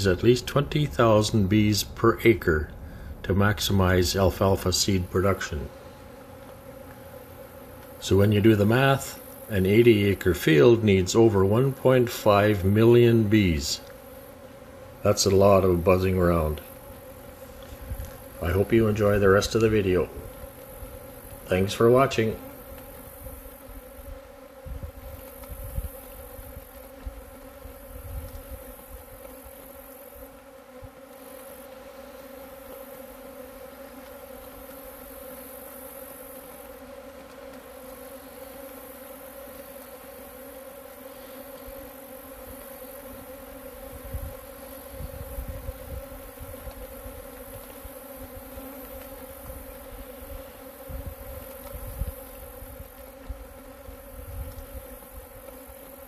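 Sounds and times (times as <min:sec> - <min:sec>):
bees buzzing: 0:00.0 - 0:56.0
wind buffeting the microphone: 0:17.7 - 0:18.2, 0:24.6 - 0:26.7, 0:28.0 - 0:28.6, 0:43.9 - 0:47.2, 0:50.3 - 0:52.9.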